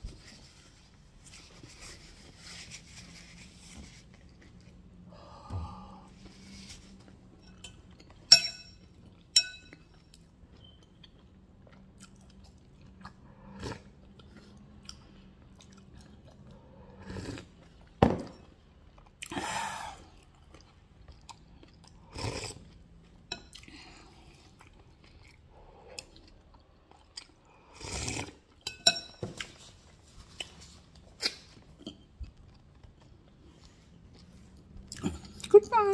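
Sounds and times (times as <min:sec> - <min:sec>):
person chewing and crunching: 0:07.8 - 0:18.0, 0:20.0 - 0:28.6, 0:30.3 - 0:35.5.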